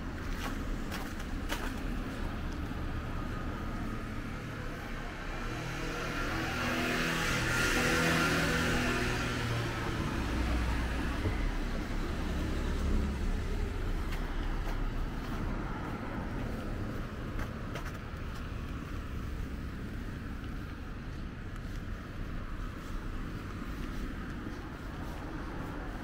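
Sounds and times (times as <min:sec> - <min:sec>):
vehicle passing on wet road: 0:05.4 - 0:16.8.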